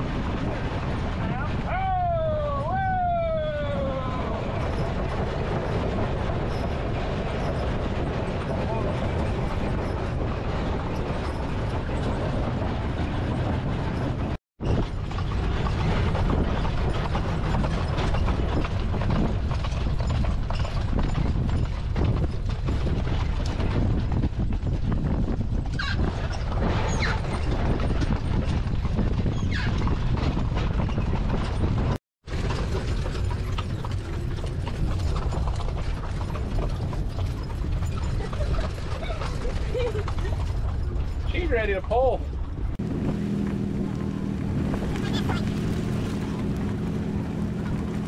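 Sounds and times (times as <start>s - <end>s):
wagon wheels clattering and rattling: 0.0s - 48.0s
hooves clip-clopping: 3.6s - 48.0s.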